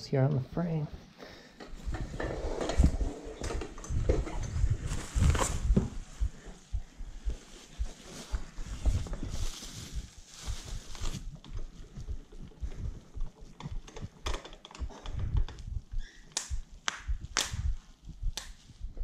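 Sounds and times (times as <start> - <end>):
bubble wrap crinkling: 7.2 - 11.8.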